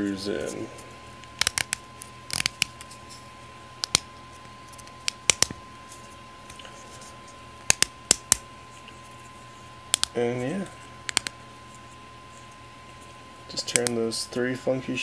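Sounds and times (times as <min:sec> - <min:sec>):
plastic pieces clicking and scraping: 0:01.2 - 0:02.9.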